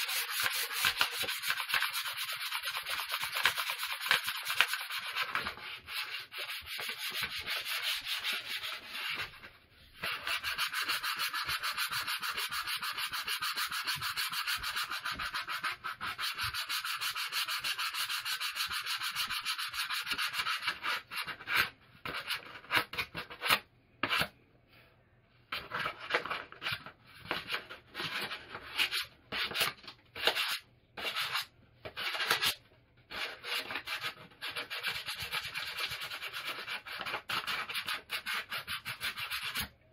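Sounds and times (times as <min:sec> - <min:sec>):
sandpaper rasping on wood: 0:00.0 - 0:09.1.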